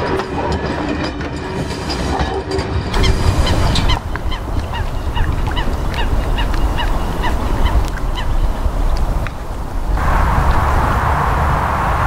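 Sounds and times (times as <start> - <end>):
geese honking: 3.0 - 12.0.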